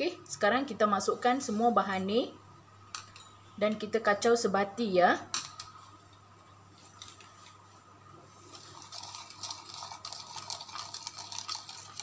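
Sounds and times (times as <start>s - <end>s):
spoon stirring in a bowl: 8.5s - 12.0s.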